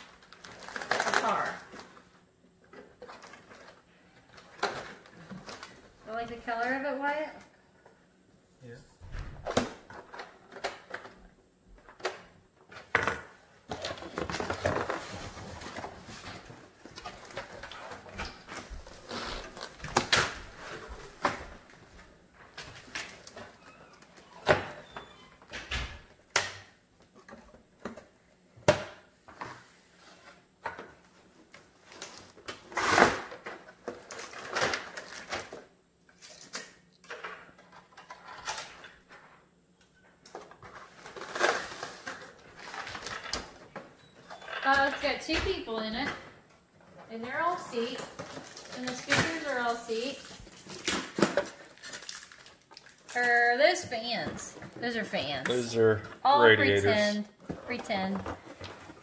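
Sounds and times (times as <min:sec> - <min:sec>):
cardboard rustling and scraping: 0:13.7 - 0:21.7.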